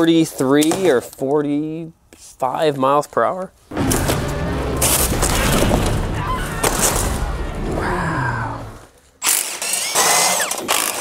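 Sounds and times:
cardboard box crushed underfoot: 0:04.8 - 0:07.3.

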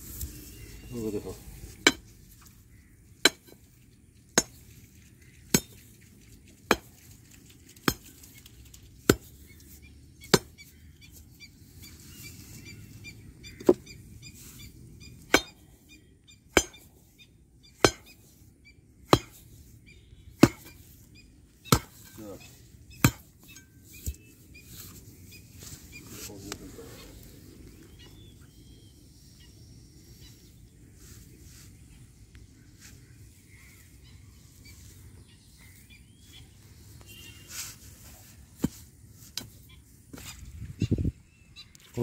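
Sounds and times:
iron bar ramming stones and soil: 0:01.7 - 0:05.9, 0:06.6 - 0:07.1, 0:07.8 - 0:08.4, 0:09.0 - 0:09.5, 0:10.2 - 0:10.8, 0:15.2 - 0:15.7, 0:16.5 - 0:17.0, 0:17.7 - 0:18.4, 0:19.0 - 0:19.6, 0:20.3 - 0:21.0, 0:21.6 - 0:24.2, 0:38.6 - 0:39.6.

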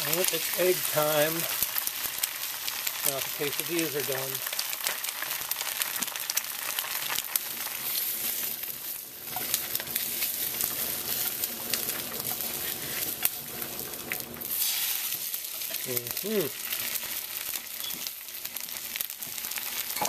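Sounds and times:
eggs sizzling in a pan: 0:00.0 - 0:20.0
small crackling pops: 0:04.2 - 0:07.8.

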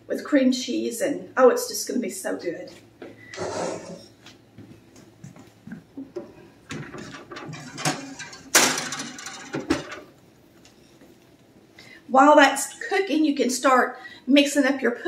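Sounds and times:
metal pan sliding into oven: 0:03.4 - 0:04.1, 0:06.7 - 0:10.1
oven door shutting: 0:06.2 - 0:10.1.

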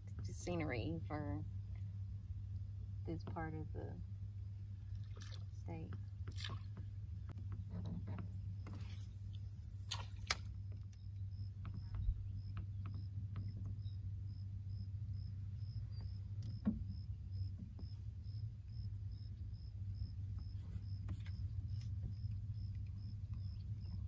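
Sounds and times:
small boat motor running: 0:03.2 - 0:24.0.

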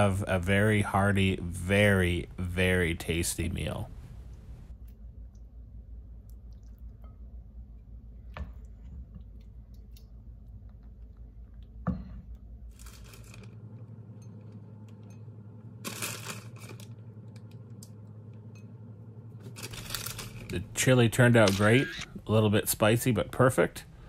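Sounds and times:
steady low hum: 0:00.0 - 0:24.0
plastic bag crinkling: 0:12.7 - 0:13.6, 0:15.8 - 0:17.0, 0:19.4 - 0:20.6.

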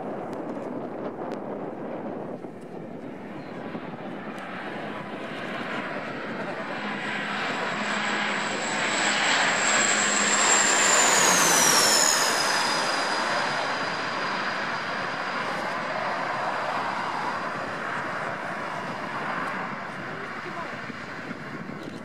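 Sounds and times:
turboprop airplane passing overhead: 0:00.2 - 0:22.0.

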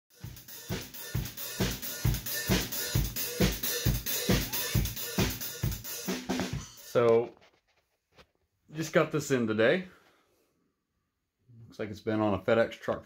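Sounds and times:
drum kit beat: 0:00.1 - 0:07.4.

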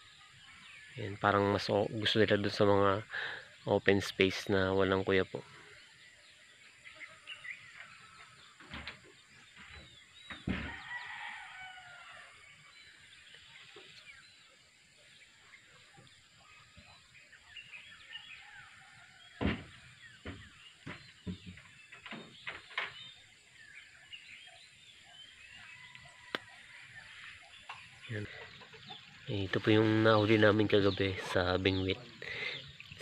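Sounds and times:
small birds chirping: 0:00.0 - 0:33.0
chickens calling: 0:04.3 - 0:33.0
rooster crowing: 0:10.6 - 0:12.6
sharp knocks: 0:19.4 - 0:22.9.

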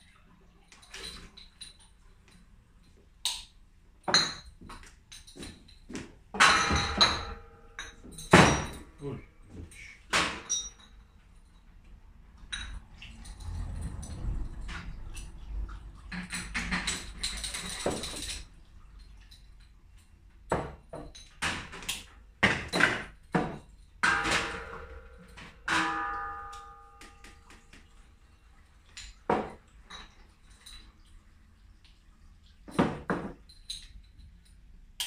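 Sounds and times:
glass bottles clinking: 0:03.3 - 0:11.7, 0:12.4 - 0:15.4, 0:16.1 - 0:18.5, 0:20.5 - 0:27.9, 0:28.9 - 0:31.0
bottle ringing: 0:24.0 - 0:27.5.

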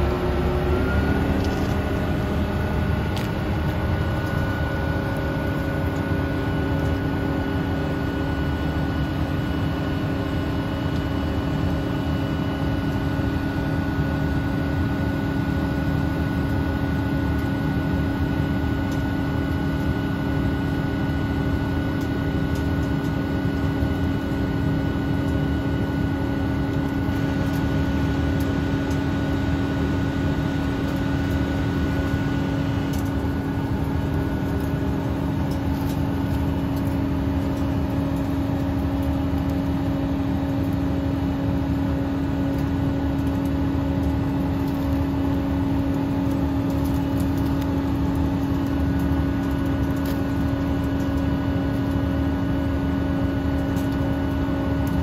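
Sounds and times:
high whine: 0:00.0 - 0:14.3
combine harvester machinery hum: 0:00.0 - 0:55.0.

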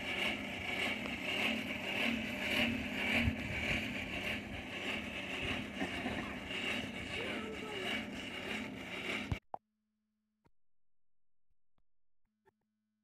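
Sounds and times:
hand-cranked blower whirring: 0:00.0 - 0:09.5.

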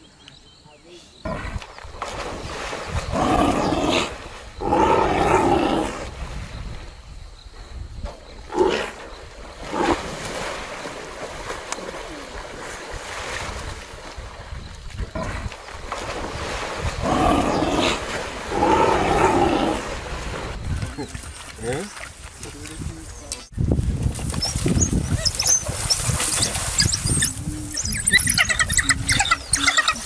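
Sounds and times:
water splashing and churning: 0:01.4 - 0:05.2, 0:08.8 - 0:30.0
lions growling: 0:03.1 - 0:06.1, 0:17.0 - 0:20.0.

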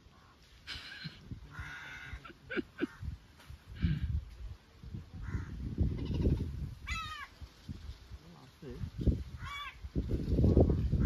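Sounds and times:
wind buffeting microphone: 0:01.1 - 0:11.0
crow cawing: 0:01.5 - 0:03.1, 0:05.2 - 0:07.3, 0:09.4 - 0:09.8.

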